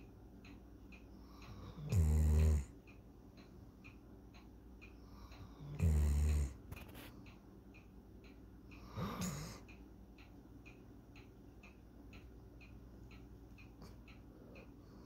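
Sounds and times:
faint steady ticking: 0.0 - 15.0
dog snoring: 1.5 - 2.8, 5.5 - 7.0, 8.8 - 9.6.

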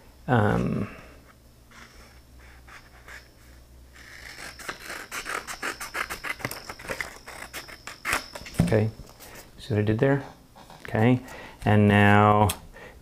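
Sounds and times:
scissors snipping paper: 4.0 - 8.6.

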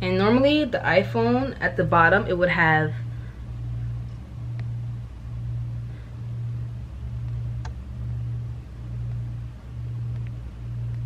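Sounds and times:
pulsing low hum: 0.0 - 11.0.

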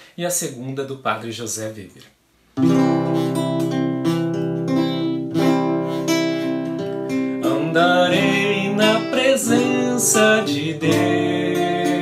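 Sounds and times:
acoustic guitar strumming chords: 2.6 - 12.0.

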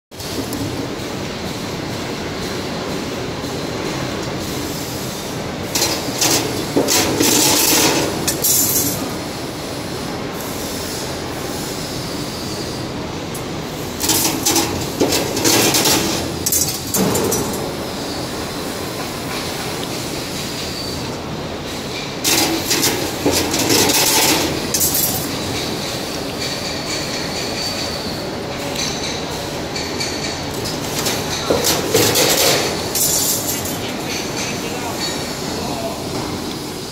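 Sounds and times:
workshop hum: 0.1 - 36.9
wire bending machine clatter: 5.6 - 9.1, 13.3 - 17.8, 21.8 - 35.2.

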